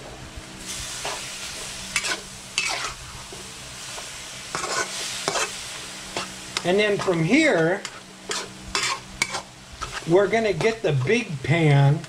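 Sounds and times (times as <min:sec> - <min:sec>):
meat sizzling in a wok: 0:00.0 - 0:12.0
metal utensil scraping pan: 0:02.0 - 0:03.0, 0:04.5 - 0:11.2.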